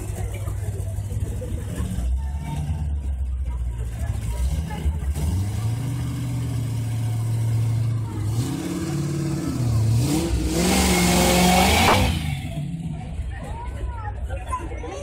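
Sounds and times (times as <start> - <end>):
race car engine revving: 3.8 - 12.9.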